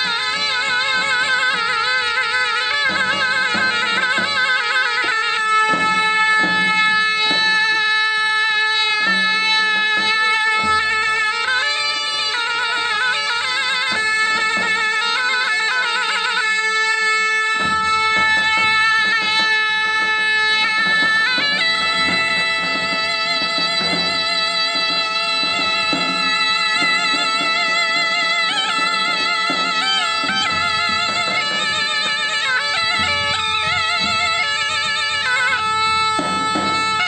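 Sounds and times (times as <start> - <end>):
drum beats: 0.0 - 37.0
reed pipe folk melody: 0.0 - 37.0.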